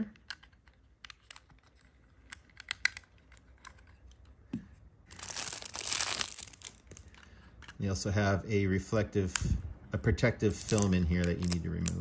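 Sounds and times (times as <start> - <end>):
plastic wrap crinkling: 5.1 - 7.2, 10.5 - 12.0.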